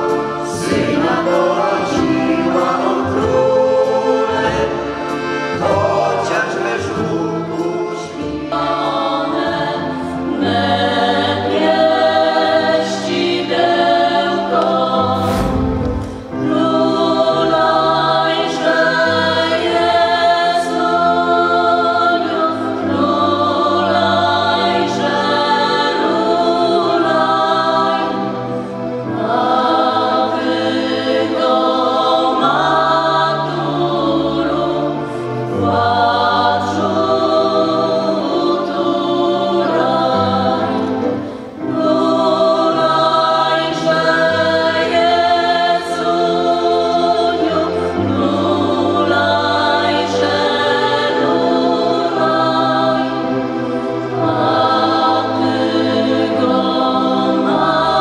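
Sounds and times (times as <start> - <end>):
women's choir singing a carol: 0.0 - 58.0
singers breathing: 15.2 - 16.4.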